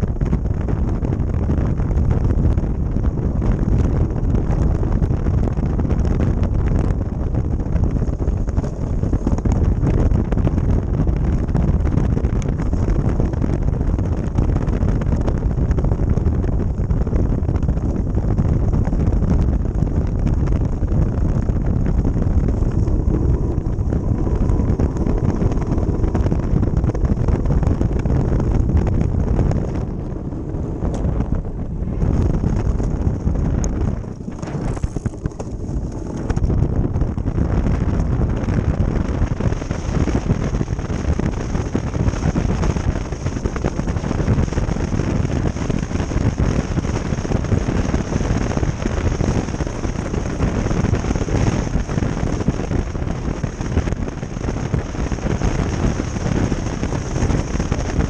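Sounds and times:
wind on microphone: 0.0 - 58.0
ice boat runners sliding on ice: 32.1 - 36.5.

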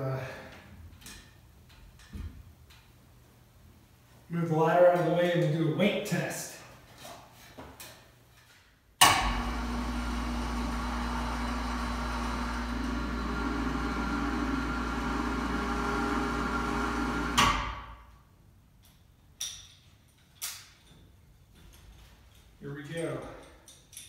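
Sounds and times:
electric hoist motor humming: 9.0 - 17.6.

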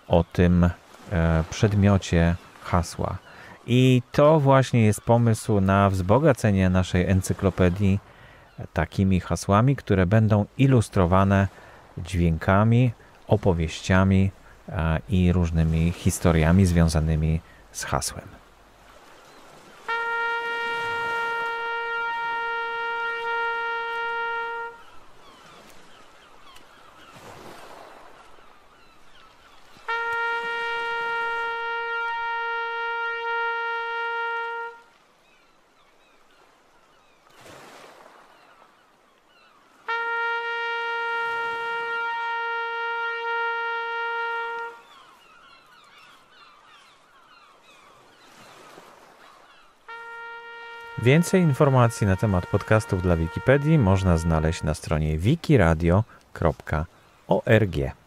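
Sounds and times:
faint outdoor background: 0.0 - 58.0
fog signal horn blasts: 19.7 - 25.0, 29.8 - 35.0, 39.8 - 45.0, 49.9 - 55.7.

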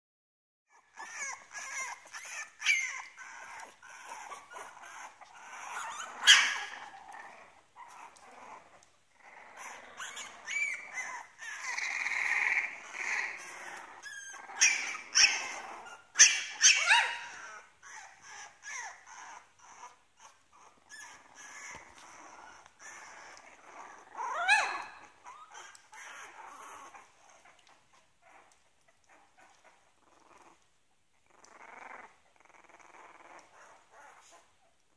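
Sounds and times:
puppy yelps: 0.7 - 7.0, 9.6 - 27.7
puppies whimpering and squeaking: 0.7 - 34.9.

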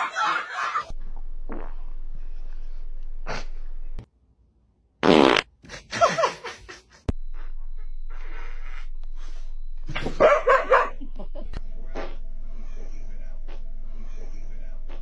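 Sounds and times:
dog farting: 5.0 - 5.5
steady low hum: 7.0 - 15.0.

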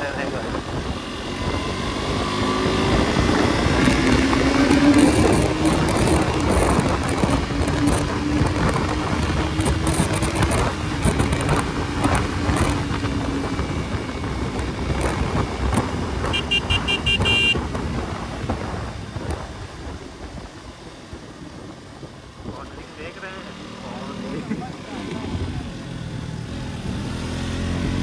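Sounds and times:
wind rush: 0.0 - 22.8
motorcycle engine riding fast: 0.0 - 28.0
short horn beeps: 16.3 - 17.6.

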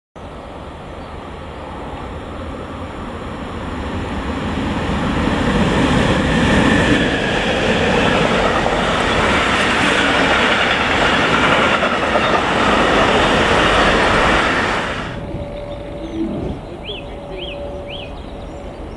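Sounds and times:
freight train passing: 0.2 - 18.9.

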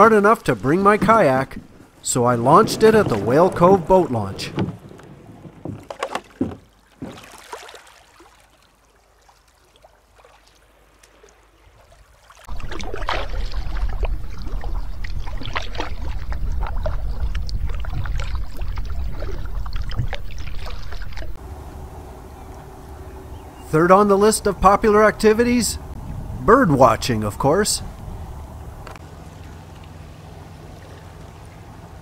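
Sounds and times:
low water rush with splashes: 0.0 - 32.0
kayak paddle splashing in water: 0.8 - 21.4.

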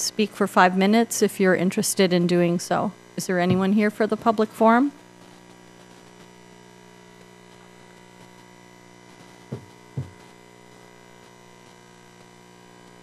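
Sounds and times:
electrical mains hum: 0.0 - 13.0
dull thumps: 3.4 - 3.7, 9.5 - 10.3.

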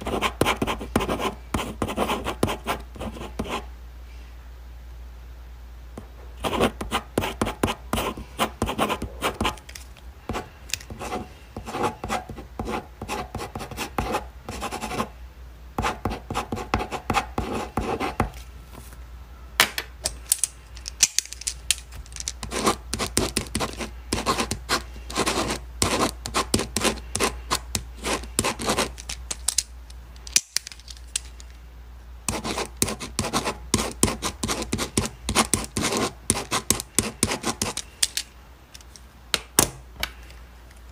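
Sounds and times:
pen scratching on paper: 0.0 - 3.6, 6.4 - 9.6, 10.3 - 15.1, 15.8 - 18.3, 22.4 - 29.0, 32.3 - 37.8.

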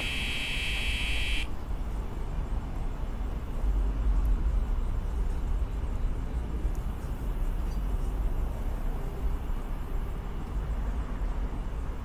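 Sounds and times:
cicada chorus buzzing: 0.0 - 1.5
low rumble of city traffic: 0.0 - 12.0.

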